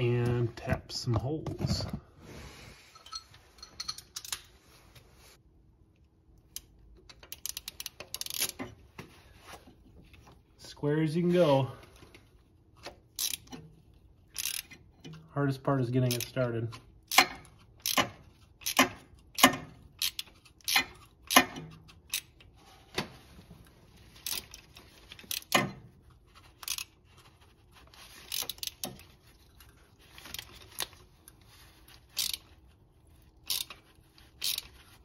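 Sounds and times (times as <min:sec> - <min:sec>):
hand ratchet clicking: 0:06.5 - 0:08.6, 0:13.1 - 0:13.6, 0:14.3 - 0:14.8, 0:17.0 - 0:22.4, 0:24.2 - 0:25.6, 0:26.6 - 0:26.9, 0:28.2 - 0:29.0, 0:32.1 - 0:32.6, 0:33.4 - 0:34.8.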